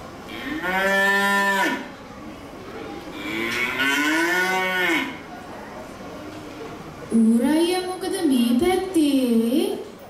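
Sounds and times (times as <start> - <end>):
cow mooing: 0.3 - 1.9, 3.2 - 5.2.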